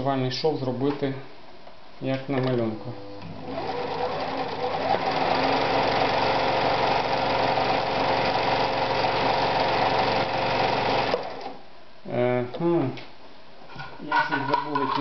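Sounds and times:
sewing machine running: 3.0 - 11.6.

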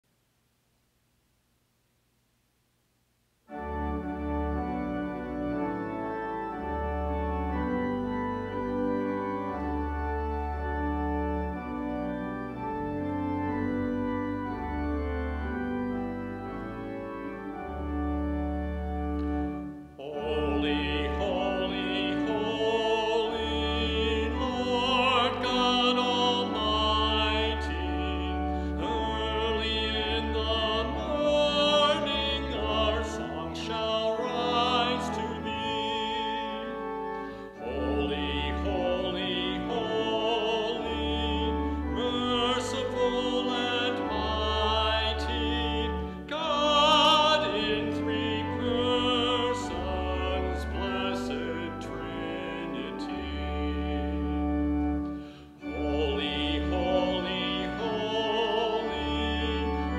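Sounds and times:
church organ chords: 3.5 - 59.9
person singing with vibrato: 20.0 - 54.3, 55.5 - 59.9.

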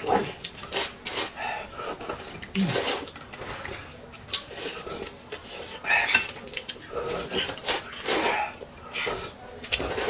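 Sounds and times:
slurping noodles: 0.2 - 6.1, 6.8 - 10.0.

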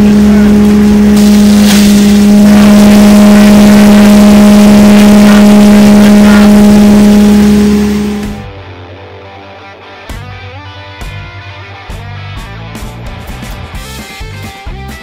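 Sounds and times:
hammer mill grinder running: 0.0 - 8.7.

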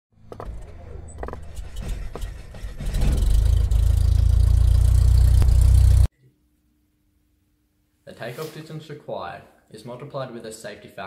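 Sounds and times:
low pulsing rumble: 1.1 - 6.1.

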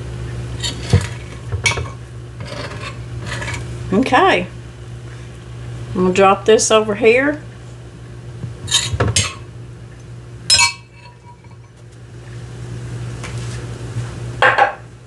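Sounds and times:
steady low hum: 0.0 - 15.0
kitchenware clinking: 8.7 - 9.4, 10.5 - 11.8.

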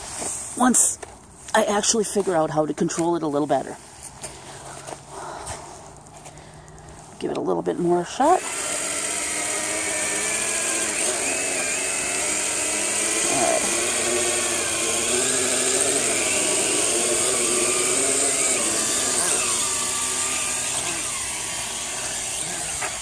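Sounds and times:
quadcopter propellers whirring: 8.1 - 23.0.

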